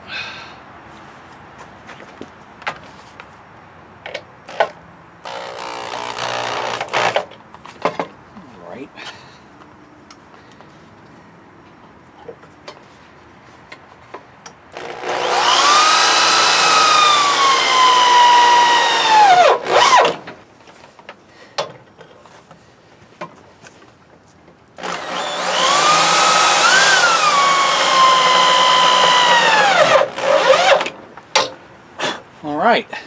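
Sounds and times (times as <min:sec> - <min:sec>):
cordless drill driving screws: 0:05.2 - 0:07.3, 0:14.8 - 0:20.1, 0:24.8 - 0:30.9.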